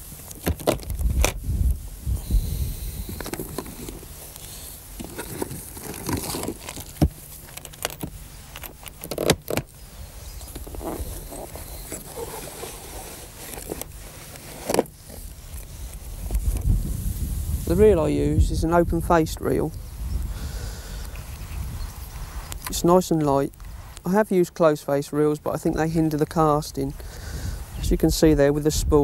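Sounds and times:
rummaging in tackle box: 0:05.0 - 0:09.7, 0:10.4 - 0:15.2.

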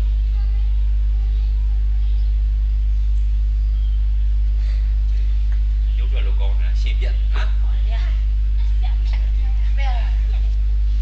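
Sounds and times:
electrical mains hum: 0:00.0 - 0:11.0
faint voice: 0:00.3 - 0:02.0.

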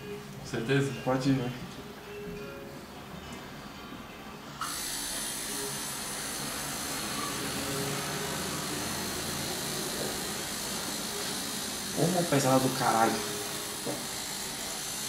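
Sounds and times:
tattoo machine buzzing: 0:04.6 - 0:15.0.

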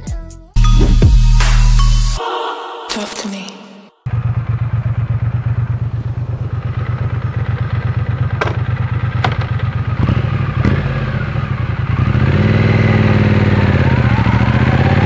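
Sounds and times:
motorcycle engine idling: 0:04.1 - 0:14.4.

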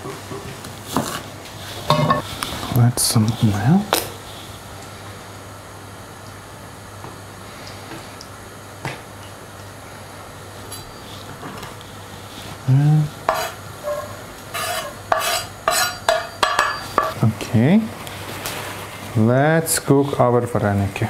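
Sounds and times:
spoon stirring in oil: 0:00.9 - 0:02.7, 0:13.2 - 0:17.2
spoon clinking against metal pan: 0:15.7 - 0:17.2.

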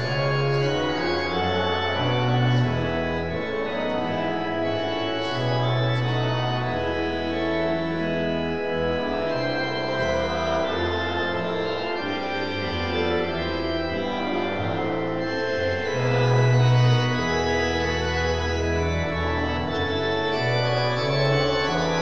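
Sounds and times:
church organ chords: 0:00.0 - 0:22.0.

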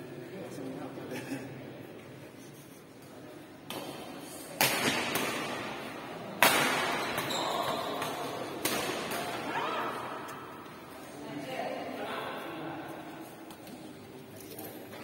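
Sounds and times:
rackets hitting shuttlecock: 0:03.7 - 0:05.8, 0:06.4 - 0:09.6.

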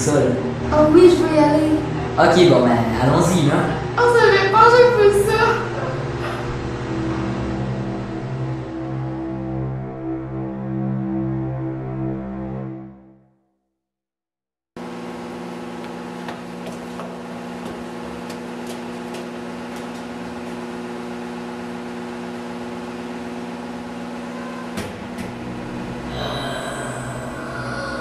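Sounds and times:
steady low hum: 0:00.0 - 0:11.7, 0:14.8 - 0:28.0
brighter noisy sound: 0:23.7 - 0:28.0.

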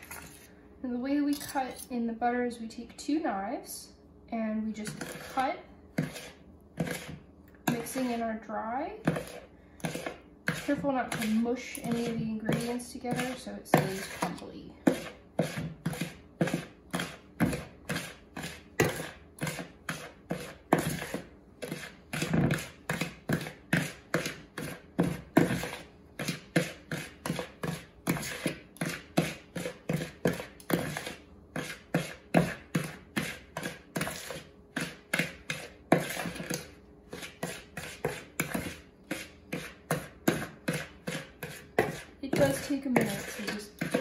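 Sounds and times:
knives scraping in plastic bowl: 0:00.0 - 0:00.5, 0:04.8 - 0:08.2, 0:09.1 - 0:22.7, 0:29.6 - 0:44.0.

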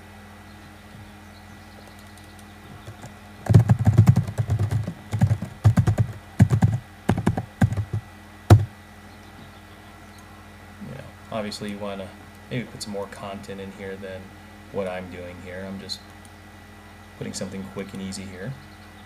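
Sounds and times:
typing on computer keyboard: 0:02.0 - 0:08.7.

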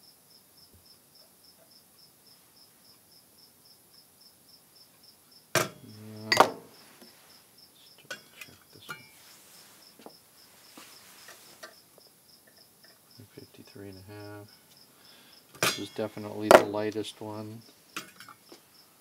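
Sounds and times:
metal rods clanking on workbench: 0:05.6 - 0:06.7, 0:15.6 - 0:16.7
light metal clinks: 0:08.0 - 0:09.2, 0:15.6 - 0:16.6.

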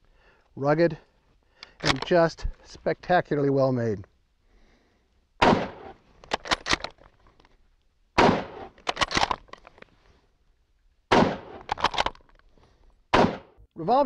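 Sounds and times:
rifle bolt clicking: 0:01.6 - 0:02.1, 0:05.6 - 0:07.1, 0:08.4 - 0:09.8, 0:11.3 - 0:12.4
rifle shots: 0:05.4 - 0:06.9, 0:08.2 - 0:09.4, 0:11.1 - 0:12.2, 0:13.1 - 0:13.6.

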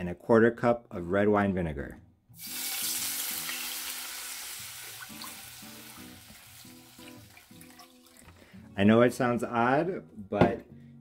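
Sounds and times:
liquid sizzling in a hot skillet: 0:02.4 - 0:08.2.

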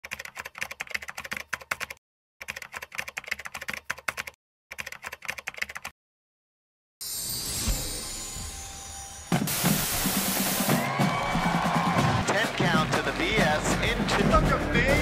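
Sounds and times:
rapid keyboard key clicks: 0:00.0 - 0:05.9.

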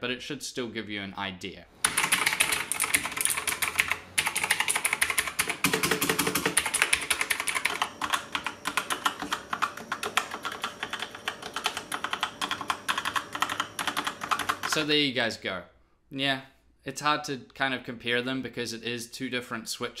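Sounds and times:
mechanical keyboard typing: 0:01.8 - 0:14.9.

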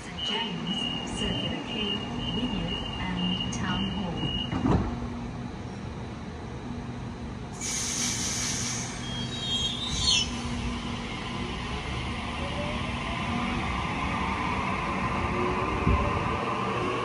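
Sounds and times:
short air hiss: 0:07.6 - 0:09.1.

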